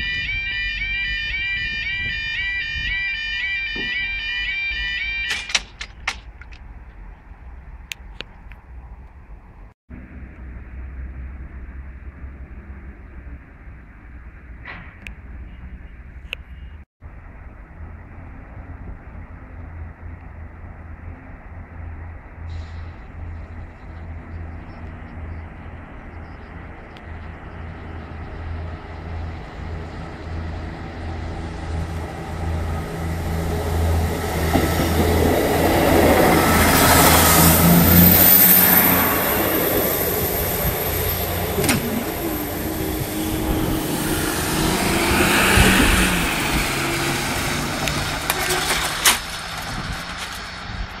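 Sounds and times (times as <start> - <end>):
road traffic: 0.0 - 51.0
passenger train passing: 17.3 - 51.0.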